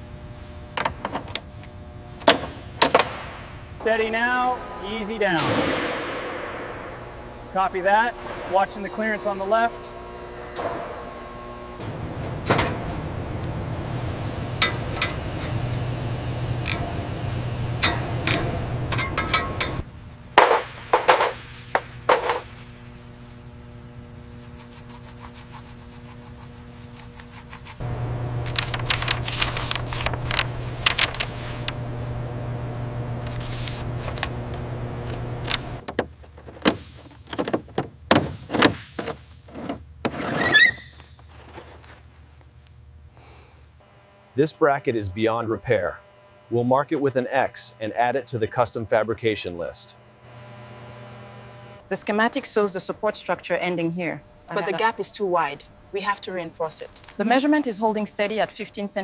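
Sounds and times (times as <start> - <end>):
steady low hum: 0.0 - 40.2, 40.8 - 59.0
panel clanking: 0.7 - 19.8.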